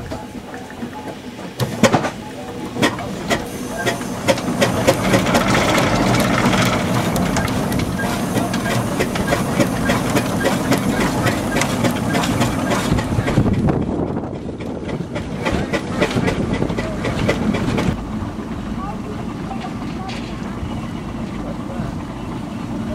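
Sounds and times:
steam engine mechanical running: 0.0s - 22.9s
steam hissing: 2.8s - 13.4s
sharp irregular clicks and knocks: 2.8s - 13.7s.

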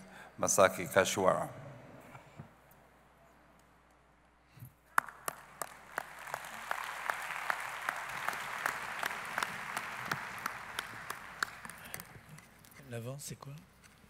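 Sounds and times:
nearby person clapping: 4.9s - 12.5s
audience applauding: 4.9s - 12.6s.

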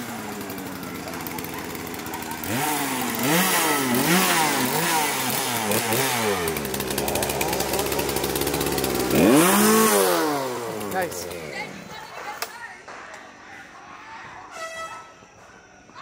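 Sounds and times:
chainsaw revving and idling: 0.0s - 12.2s.

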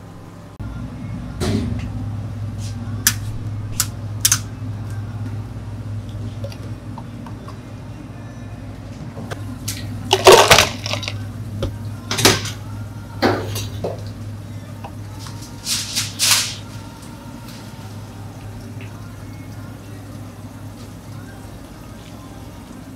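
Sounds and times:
steady low hum: 0.0s - 22.9s
ice cubes clattering into plastic cup: 10.1s - 11.2s.

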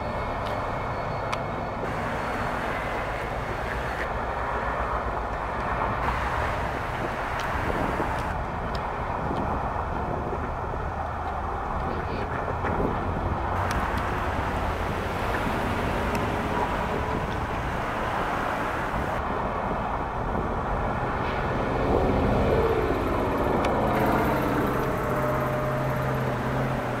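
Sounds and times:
low engine hum: 0.0s - 27.0s
road traffic rumble: 0.0s - 27.0s.

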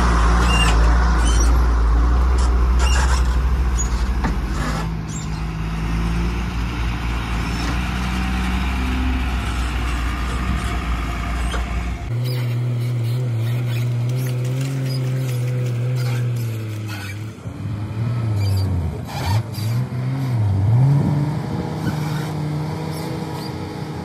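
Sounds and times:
diesel truck engine rumbling: 0.0s - 24.0s
short high squeaks: 0.4s - 1.6s, 2.4s - 5.5s, 11.4s - 17.4s, 18.4s - 19.8s.

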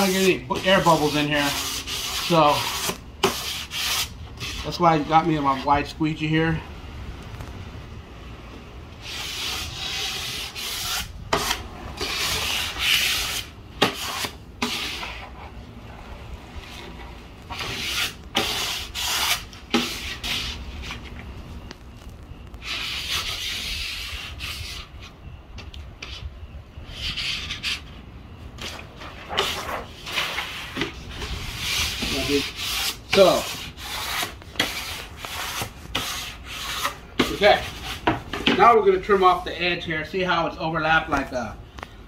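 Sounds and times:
plastic squeegee scraping vinyl: 0.0s - 5.8s, 9.0s - 21.2s, 22.0s - 25.2s, 28.6s - 39.5s.

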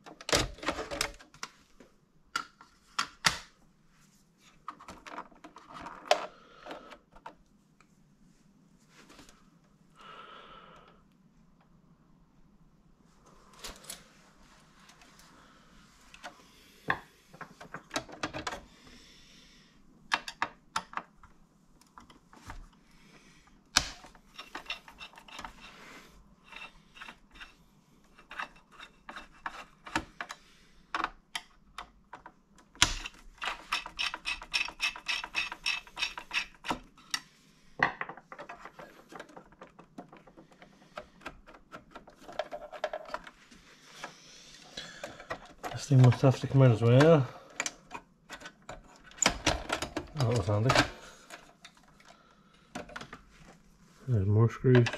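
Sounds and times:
metal parts clicking and rattling: 23.8s - 25.8s, 31.8s - 37.2s, 45.0s - 52.1s
screwdriver turning screws: 32.8s - 36.9s.

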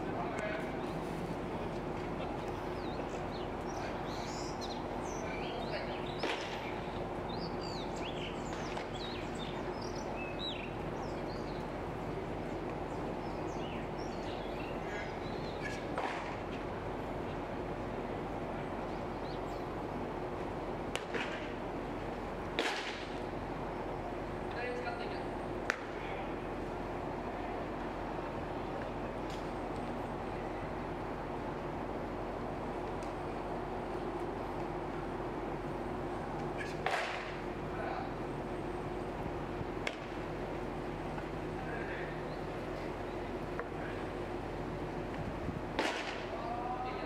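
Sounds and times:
outdoor background hum: 0.0s - 47.0s
small birds chirping: 2.4s - 16.0s
sharp cracks or knocks: 22.6s - 23.1s, 36.8s - 37.3s, 45.8s - 46.3s.

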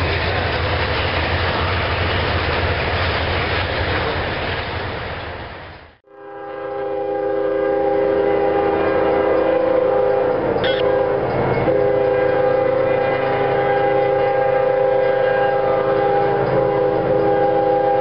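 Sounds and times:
locomotive air horn blast: 6.0s - 18.0s.

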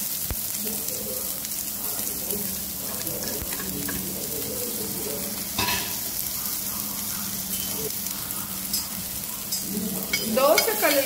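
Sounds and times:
onions sizzling in hot oil: 0.0s - 11.0s.

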